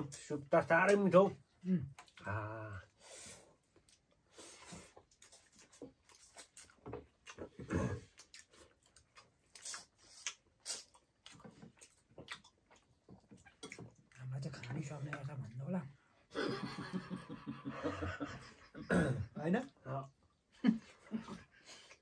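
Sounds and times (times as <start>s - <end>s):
wet chewing and smacking: 1.9s - 2.3s, 3.6s - 15.6s.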